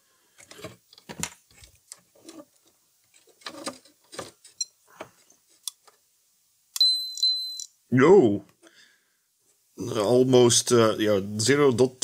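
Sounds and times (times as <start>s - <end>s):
faint clicks and scrapes of handling: 0.3s - 6.0s.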